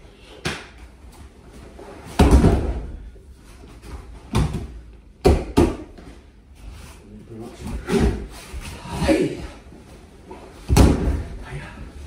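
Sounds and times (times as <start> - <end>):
body thud on training mat: 2.1 - 2.9, 10.6 - 11.3.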